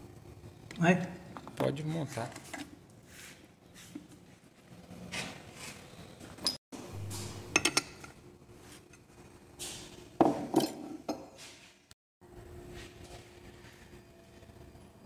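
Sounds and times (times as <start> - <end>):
metal tools clinking on workbench: 10.2 - 11.4.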